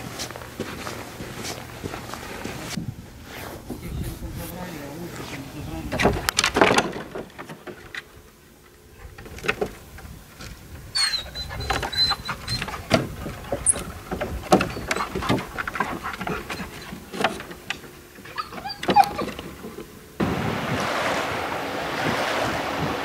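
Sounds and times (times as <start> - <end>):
wooden planks knocking and clattering: 5.9 - 8.1, 11.6 - 20.0
high squeak: 11.0 - 12.7.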